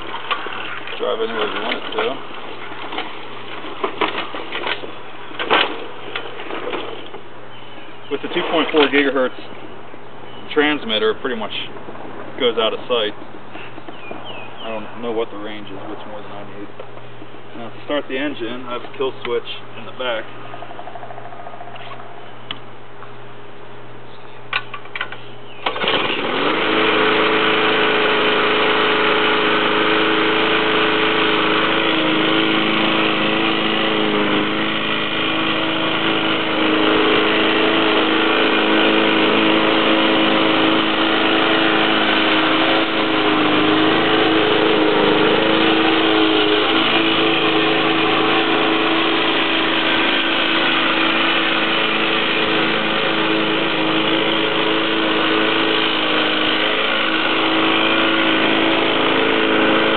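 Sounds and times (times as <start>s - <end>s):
lawn mower engine running: 0.0s - 10.8s, 24.6s - 59.9s.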